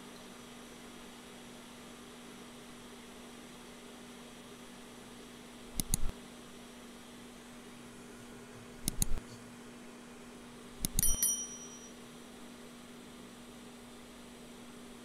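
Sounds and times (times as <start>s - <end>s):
steady low hum: 0.0s - 15.0s
mouse clicks: 5.7s - 6.1s, 8.8s - 9.2s, 10.8s - 11.1s
short bell ding: 11.0s - 12.0s.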